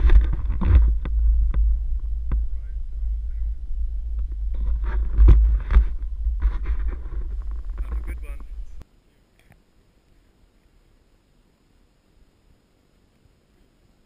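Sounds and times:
wind buffeting microphone: 0.0s - 8.8s.

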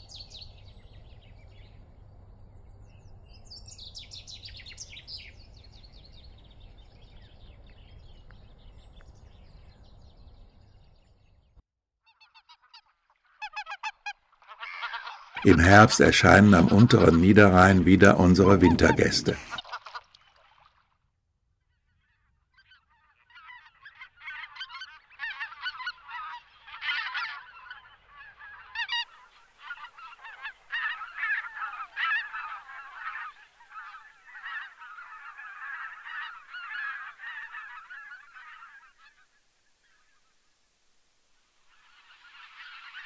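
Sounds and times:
geese honking: 12.1s - 20.1s, 22.6s - 40.1s, 41.7s - 43.0s.

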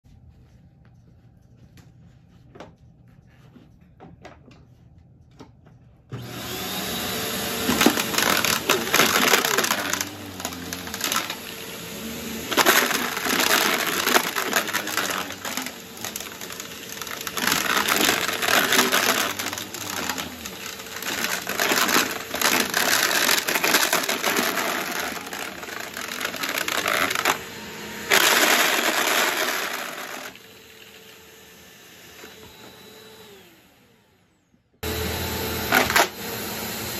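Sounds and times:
vacuum cleaner whining: 6.1s - 36.9s
candy pieces rattling: 7.7s - 11.4s, 12.4s - 27.4s.

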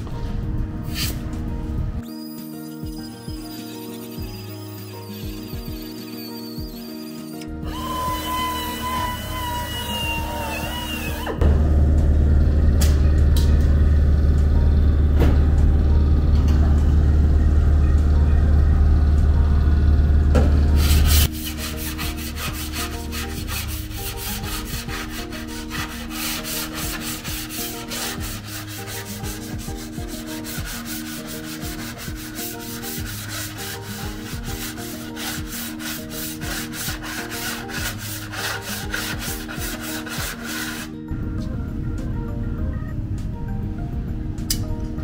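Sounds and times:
soft background music: 0.0s - 45.0s
hand sanding metal: 20.8s - 41.0s.

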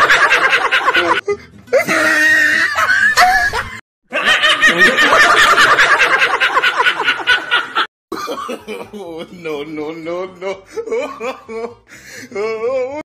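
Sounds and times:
laughter in pulsing bursts: 0.0s - 1.2s, 2.7s - 7.9s.

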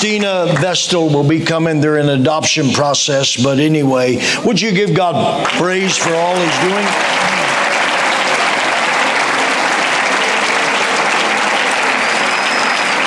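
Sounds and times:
people applauding: 0.0s - 1.0s, 5.4s - 13.0s.

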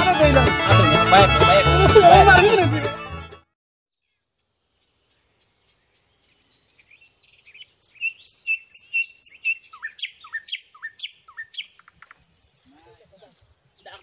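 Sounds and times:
high bird chirps: 4.0s - 14.0s.

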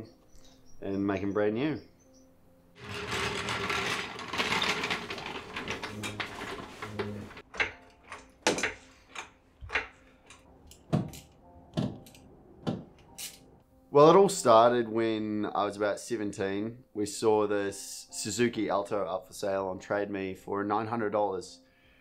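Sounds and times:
hand tools clicking and rattling: 2.8s - 12.2s
metallic clinks and knocks: 2.9s - 12.2s.

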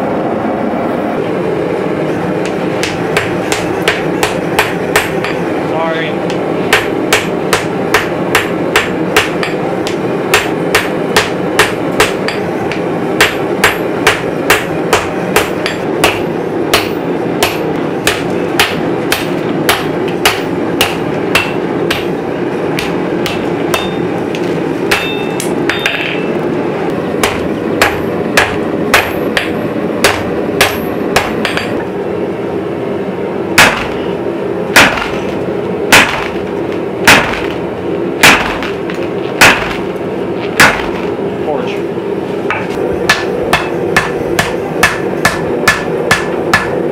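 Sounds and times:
steady rushing noise: 0.0s - 46.9s
hammer striking steel on anvil: 2.4s - 5.5s, 6.2s - 22.2s, 22.8s - 26.3s, 27.2s - 31.9s, 33.6s - 34.1s, 34.8s - 35.3s, 35.9s - 36.4s, 37.0s - 37.6s, 38.2s - 39.9s, 40.6s - 41.1s, 42.5s - 46.9s.

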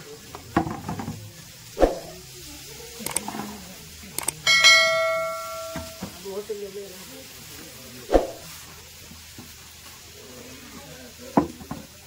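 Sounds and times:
sharp clicks: 3.0s - 3.3s, 4.2s - 4.4s
notification ding: 4.5s - 6.2s.

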